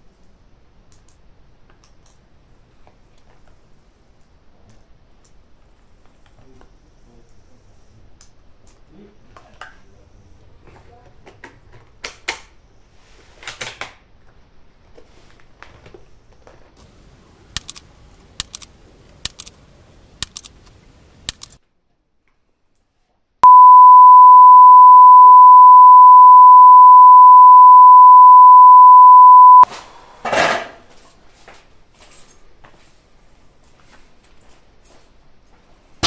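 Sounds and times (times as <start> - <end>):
faint sharp clicks: 20.2 - 21.6
steady bleep tone: 23.4 - 29.6.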